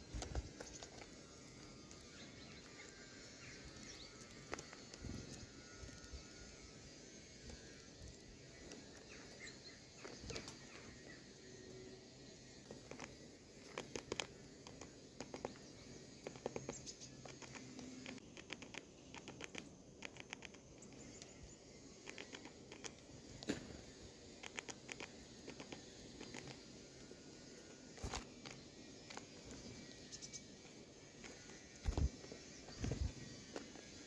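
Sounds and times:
birds pecking on wooden tray: 0:00.1 - 0:06.0, 0:12.6 - 0:21.0.

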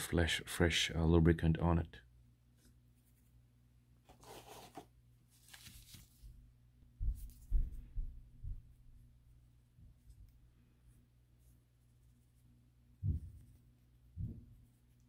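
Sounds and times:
faint handling rustles: 0:04.0 - 0:06.4.

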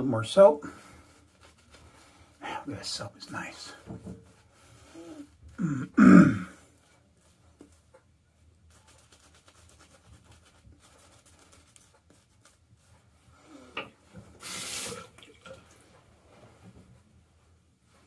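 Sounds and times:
shaving brush scrubbing: 0:00.8 - 0:04.5, 0:08.7 - 0:13.1
knock: 0:03.9 - 0:04.2
tap water running: 0:13.8 - 0:15.8.

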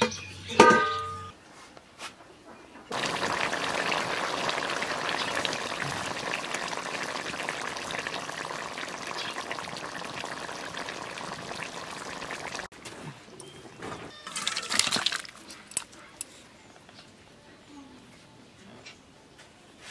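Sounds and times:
curry boiling with bubbles bursting: 0:02.9 - 0:12.7.

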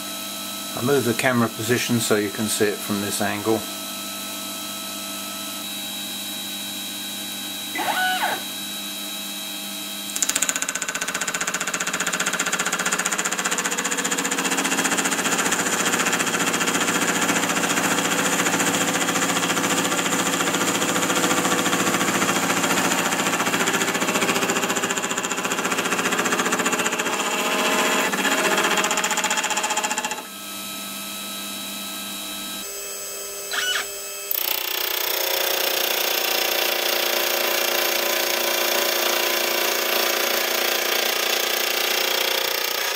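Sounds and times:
milling motor running: 0:33.4 - 0:37.8.

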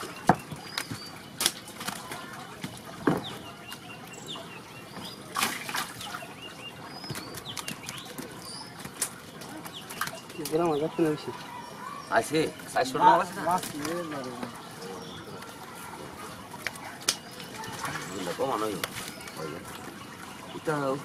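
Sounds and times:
wet fish slapping and flapping: 0:00.0 - 0:04.1, 0:04.9 - 0:10.8, 0:13.2 - 0:14.6, 0:15.3 - 0:20.4
small birds chirping: 0:00.0 - 0:21.0.

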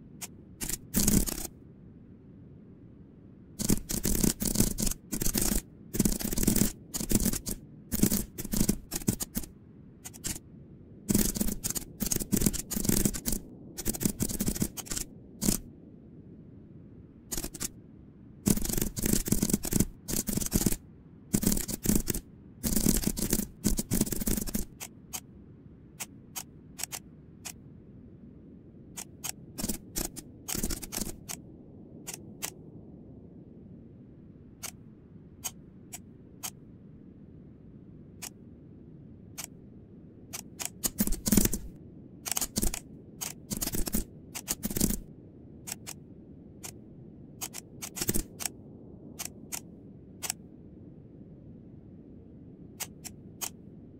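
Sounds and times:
computer keyboard typing: 0:00.6 - 0:01.5, 0:03.6 - 0:10.4, 0:11.1 - 0:15.6, 0:17.3 - 0:17.7, 0:18.5 - 0:25.2, 0:26.0 - 0:27.6, 0:29.0 - 0:31.4, 0:40.4 - 0:45.1, 0:47.4 - 0:48.5.

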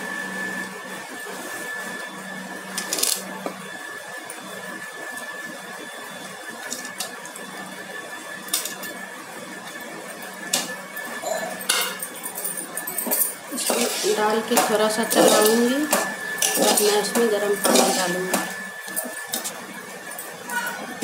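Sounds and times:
steady hum: 0:09.9 - 0:21.0.

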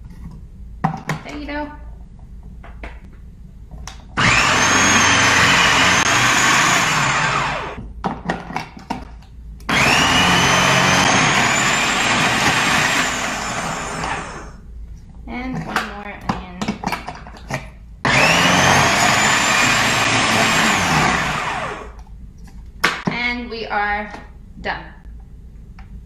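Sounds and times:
food processor motor whining: 0:04.2 - 0:07.8, 0:09.7 - 0:14.6, 0:18.1 - 0:22.0.

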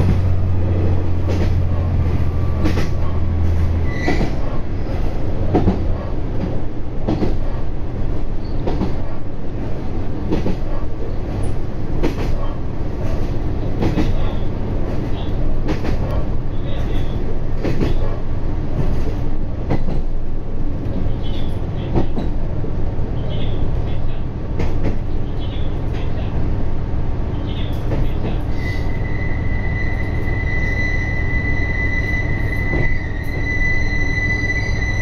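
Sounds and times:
railcar running rumble: 0:00.0 - 0:35.0
high brake squeal: 0:03.8 - 0:04.4, 0:28.5 - 0:35.0.

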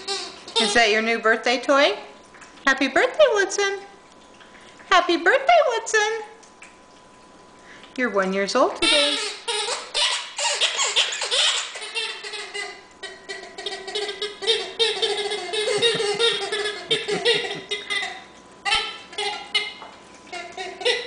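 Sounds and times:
rubber squeaky toy squeaking: 0:08.9 - 0:12.7.

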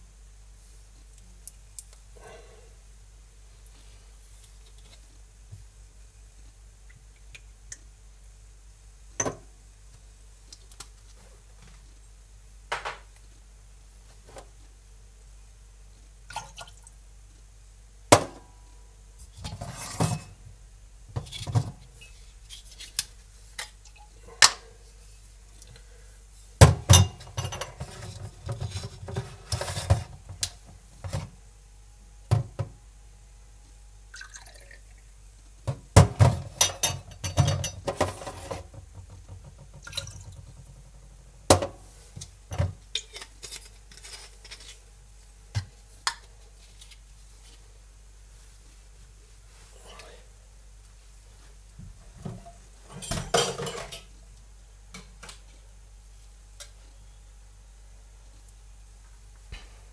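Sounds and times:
liquid pouring into glasses: 0:34.1 - 0:34.9.

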